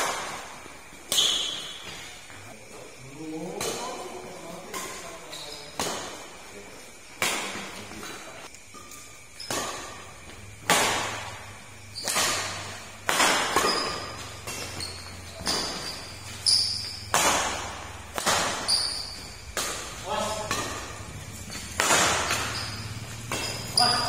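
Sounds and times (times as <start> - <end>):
racket hitting shuttlecock: 0.0 - 2.2, 5.8 - 6.3, 7.2 - 24.0
short high squeaks: 1.1 - 2.2, 13.5 - 17.1, 18.6 - 19.5, 21.5 - 24.0.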